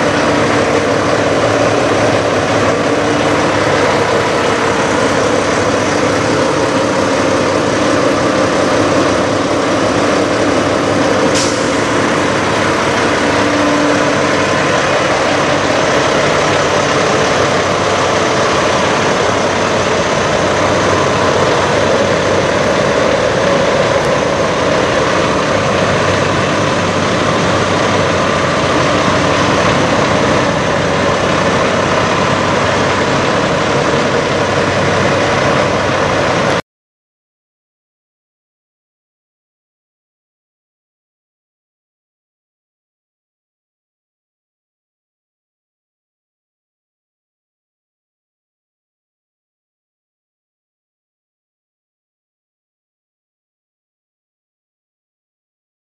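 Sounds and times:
diesel truck engine idling: 0.0 - 36.6.

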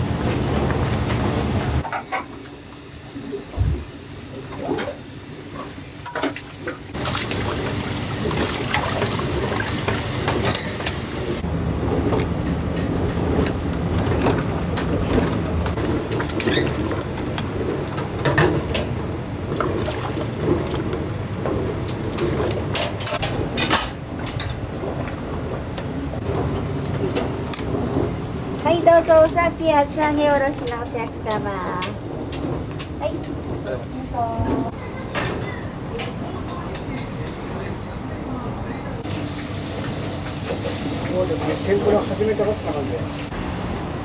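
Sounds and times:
utensils and dishes clinking: 6.0 - 11.1.

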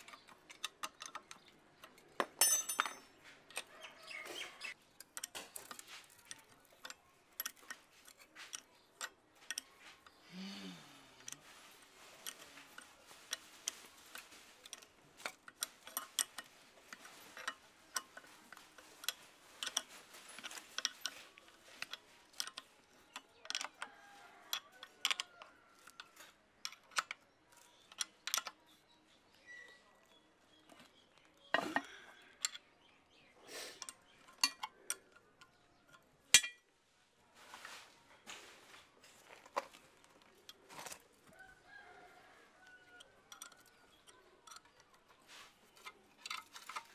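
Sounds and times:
spanner clinking on metal nuts: 0.0 - 4.2, 33.9 - 36.7, 43.0 - 46.9.

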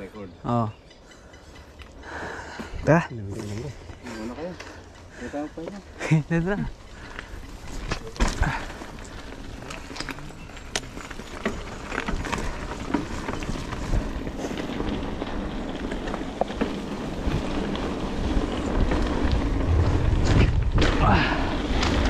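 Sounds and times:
bike rattles and clicks: 0.0 - 22.0
tyres crunching over gravel: 1.8 - 22.0
wind buffeting microphone: 5.8 - 22.0.

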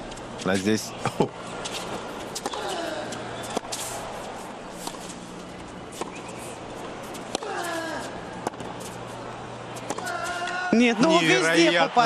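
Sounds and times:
steady low hum: 0.0 - 10.7
tennis ball strikes: 5.9 - 7.7, 9.8 - 10.6.

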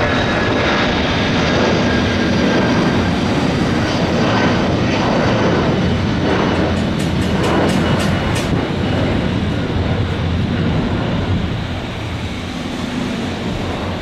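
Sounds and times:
jet engines loud rushing: 0.0 - 14.0.

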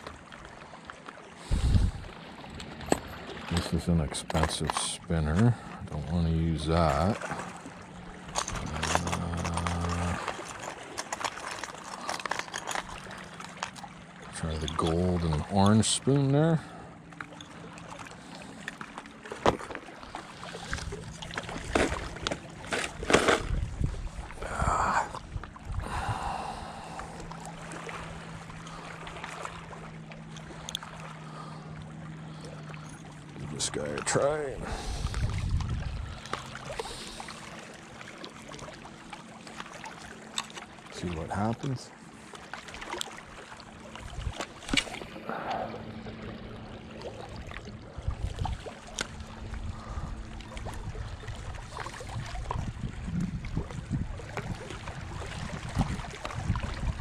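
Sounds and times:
small waves lapping on rocks: 0.0 - 57.0
wind noise: 1.5 - 2.1, 22.9 - 26.4, 34.6 - 36.2, 49.6 - 57.0
fishing tackle clicking and rustling: 7.8 - 16.0, 18.6 - 23.8, 39.5 - 40.7, 44.1 - 45.2.

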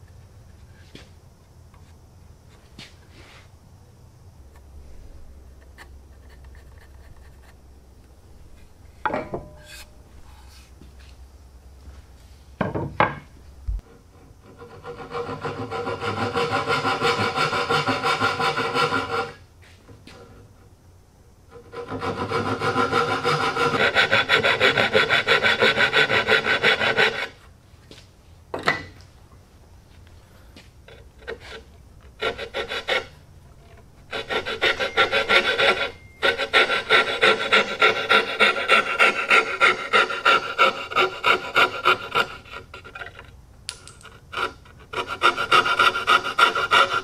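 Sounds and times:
hand saw cutting wood: 14.5 - 19.4, 21.6 - 27.4, 31.0 - 33.2, 34.1 - 43.3, 44.0 - 47.0.

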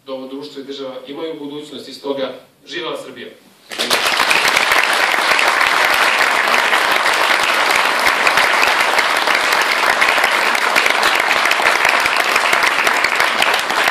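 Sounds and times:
audience applauding: 3.7 - 13.9.

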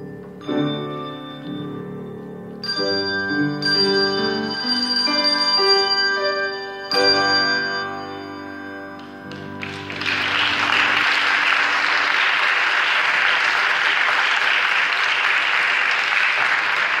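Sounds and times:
handbell notes: 2.6 - 11.2
audience applauding: 9.3 - 17.0.

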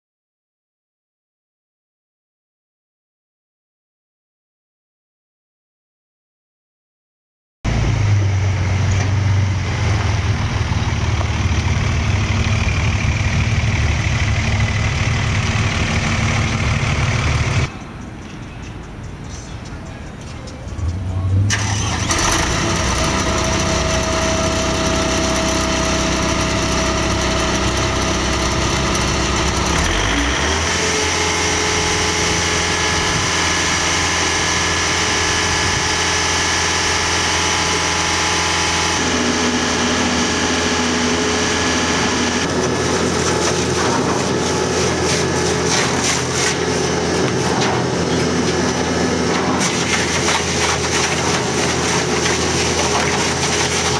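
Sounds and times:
engine starting and running: 7.7 - 17.7, 20.8 - 53.9.

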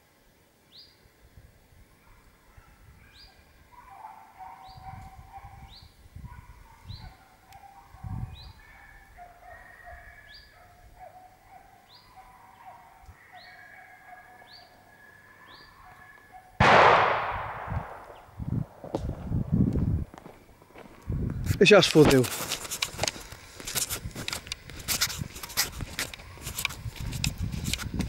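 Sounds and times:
distant dogs baying: 2.0 - 18.3.

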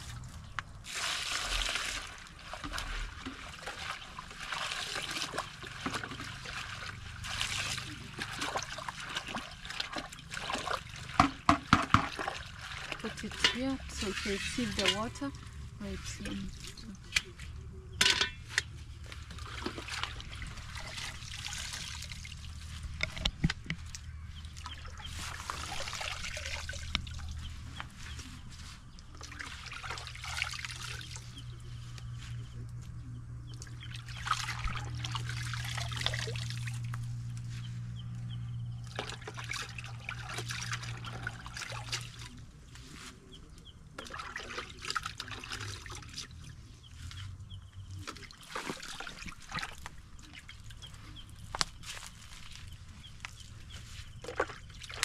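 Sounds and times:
water splashing and trickling: 0.0 - 55.0
wet leaves rustling: 23.8 - 32.5, 48.0 - 55.0.

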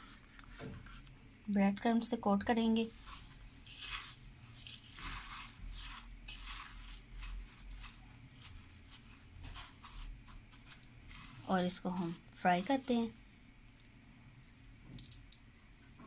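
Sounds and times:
breadcrumbs crunching and rustling: 2.9 - 12.3.

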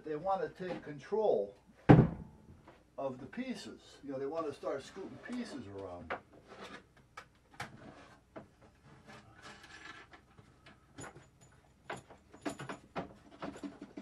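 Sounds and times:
knocks and clicks of handled gear: 9.4 - 14.0.

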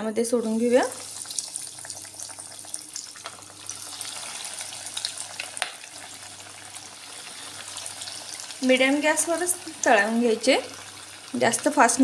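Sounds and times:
food frying in hot oil: 0.0 - 12.0
sharp oil crackles: 0.7 - 8.7.

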